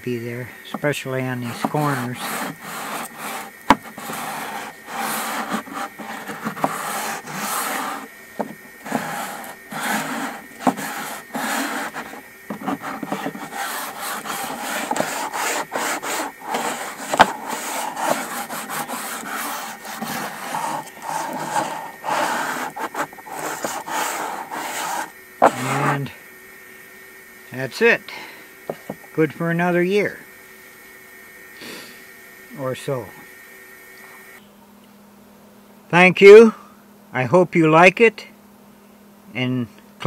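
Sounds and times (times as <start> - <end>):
sanding block scraping wood: 0.7 - 26.1.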